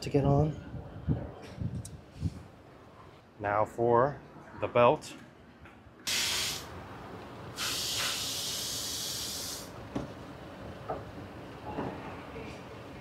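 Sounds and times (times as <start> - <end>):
hissing spray: 6.1 - 6.7, 7.6 - 9.7.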